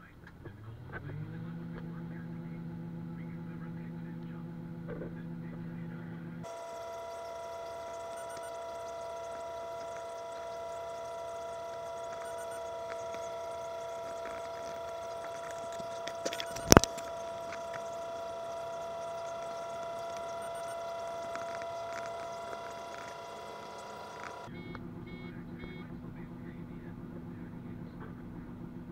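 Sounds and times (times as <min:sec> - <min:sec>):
combine harvester whining: 0:00.0 - 0:28.9.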